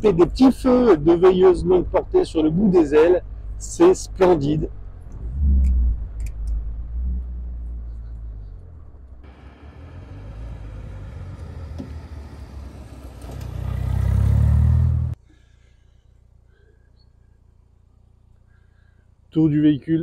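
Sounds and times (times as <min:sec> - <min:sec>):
car engine running: 0:00.0 - 0:15.2.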